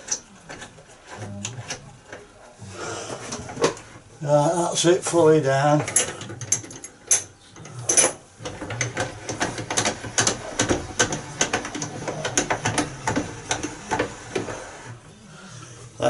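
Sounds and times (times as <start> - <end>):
window winder gear clicking: 8.4 - 14.9.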